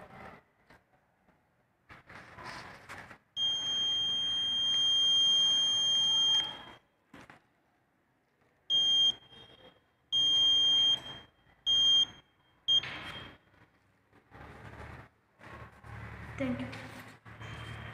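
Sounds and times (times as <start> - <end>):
short alarm beeps: 3.4 - 6.8, 8.7 - 13.4.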